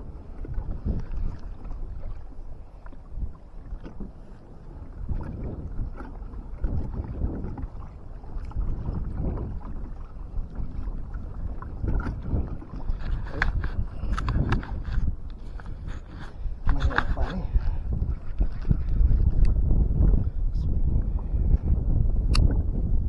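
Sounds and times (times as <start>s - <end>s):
water slapping against kayak hull: 0.0s - 20.2s
strong wind buffeting microphone: 0.0s - 23.0s
light clicks from handling gear: 12.8s - 19.6s.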